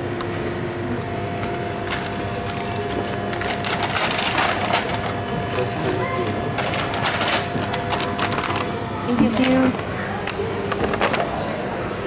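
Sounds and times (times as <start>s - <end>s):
steady background hum: 0.0s - 12.0s
paper bag rustling and crinkling: 1.5s - 9.7s, 10.7s - 11.6s.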